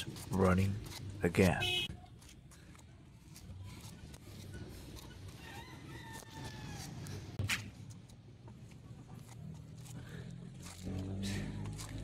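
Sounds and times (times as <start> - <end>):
rooster crowing: 5.4 - 7.2.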